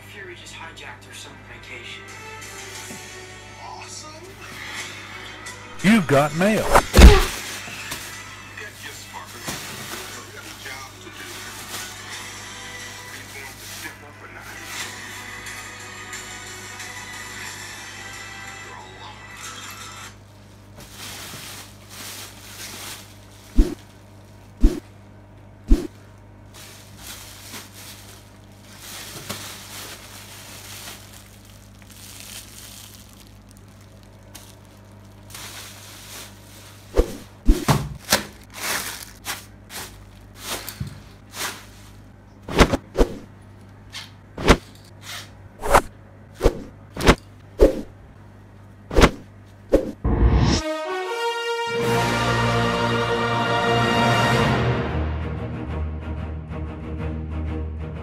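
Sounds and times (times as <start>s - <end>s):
bubble wrap crinkling: 20.8s - 24.6s, 26.4s - 42.1s
low steady hum: 20.8s - 44.9s.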